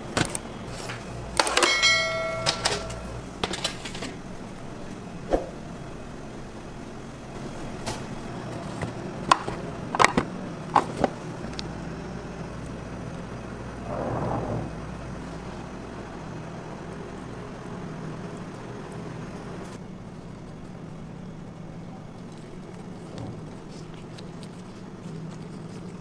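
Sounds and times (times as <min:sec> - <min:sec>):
kitchen hum: 0:00.0 - 0:26.0
metal trays clinking: 0:00.7 - 0:04.2
short scraping noise: 0:13.9 - 0:15.1.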